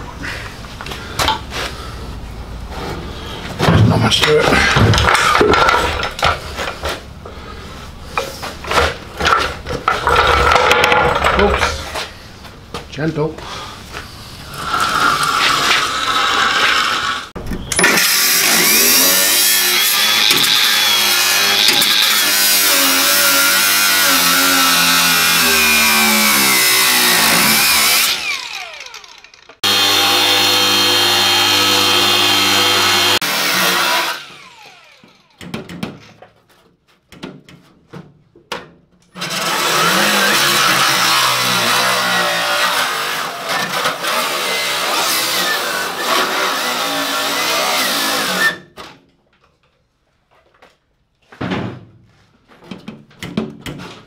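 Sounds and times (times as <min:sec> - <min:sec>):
angle grinder cutting steel: 0:14.6 - 0:35.4, 0:39.2 - 0:48.6.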